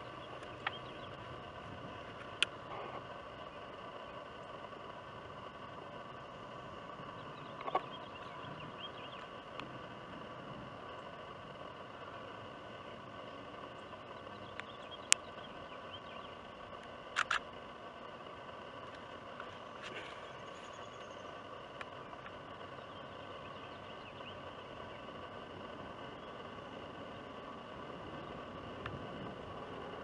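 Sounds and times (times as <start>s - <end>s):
faint chirps: 0.0s - 30.0s
faint drone: 0.0s - 30.0s
steady outdoor hiss: 0.0s - 30.0s
sharp clicks: 0.3s - 1.1s, 7.5s - 9.7s, 13.7s - 15.4s, 16.7s - 17.6s.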